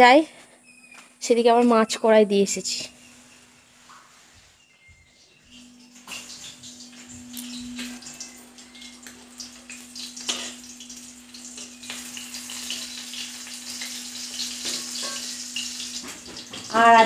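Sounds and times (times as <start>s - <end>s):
fish sizzling in oil: 5.5s - 17.0s.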